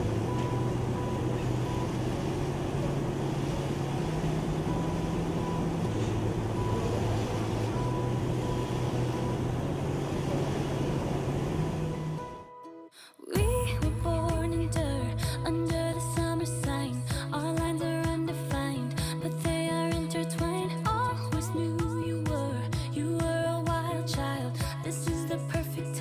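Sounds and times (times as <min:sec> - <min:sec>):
motor humming: 0:00.0 - 0:12.4.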